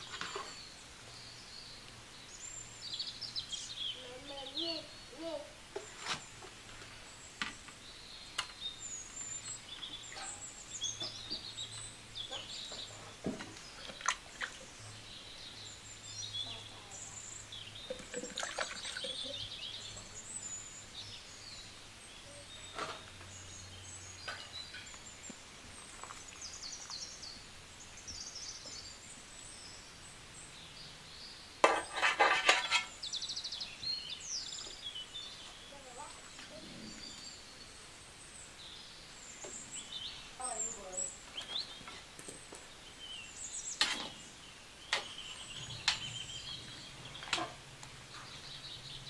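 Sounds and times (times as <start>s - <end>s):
birds chirping: 0.0s - 49.0s
skimmer scraping in metal pan: 31.6s - 33.0s.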